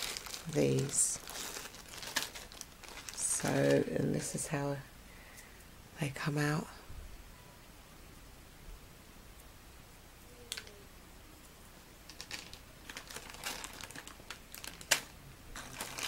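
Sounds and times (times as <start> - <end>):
plastic bags crinkling: 0.0 - 4.5, 12.1 - 16.0.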